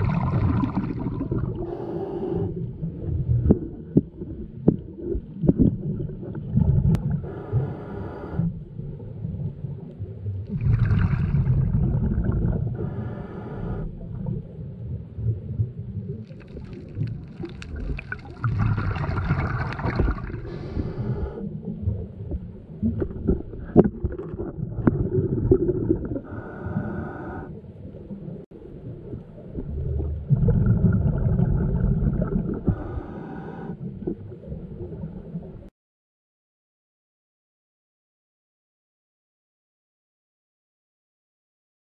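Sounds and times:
regulator breaths hissing and gurgling: 0.0 - 2.7, 7.1 - 8.6, 12.6 - 14.1, 18.4 - 21.6, 25.6 - 27.6, 32.4 - 34.2
low rumble of water: 0.0 - 35.7.

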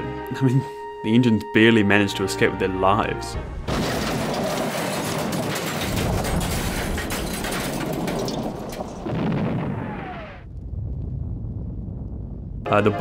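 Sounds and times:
explosion boom: 3.4 - 12.7
rumbling crash with crackling debris: 3.4 - 13.0.

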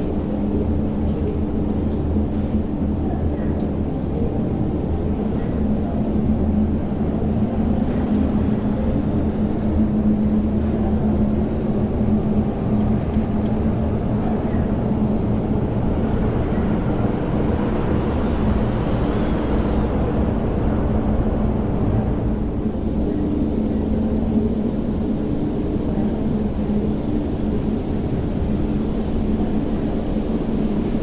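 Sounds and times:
train low rumble: 0.0 - 31.0
train motor whine rising: 17.5 - 20.6.

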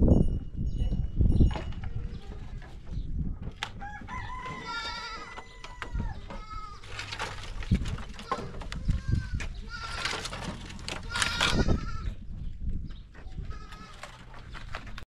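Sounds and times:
rooster crowing: 3.8 - 6.2
low rustling: 6.2 - 12.0.

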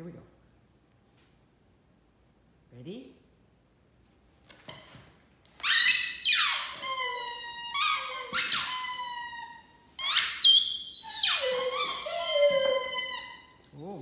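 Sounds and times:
squeaky toy squealing: 5.6 - 13.6.

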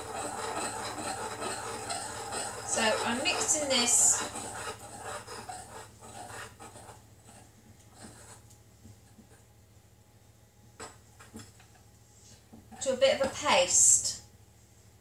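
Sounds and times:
utensil stirring paste in glass bowl: 0.0 - 8.5
low steady hum: 0.0 - 15.0.

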